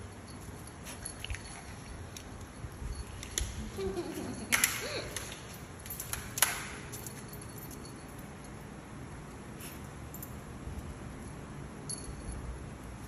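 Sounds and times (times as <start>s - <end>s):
leash snapping: 4.5s - 7.1s.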